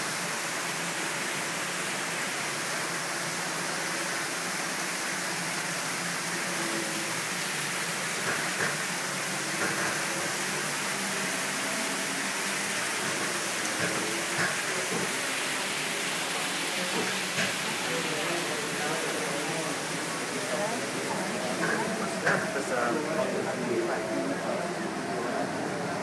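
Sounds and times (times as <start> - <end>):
water rushing in cave: 0.0 - 26.0.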